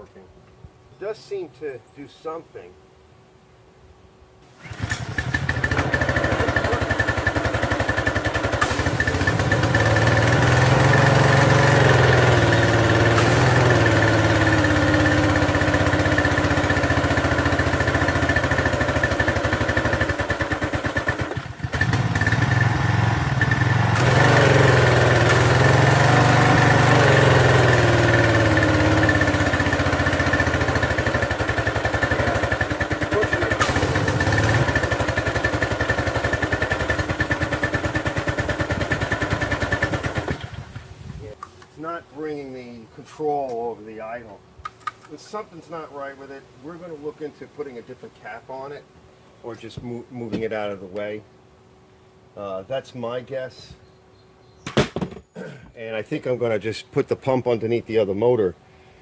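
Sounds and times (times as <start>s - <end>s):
small engine starting and running: 4.5s - 40.8s.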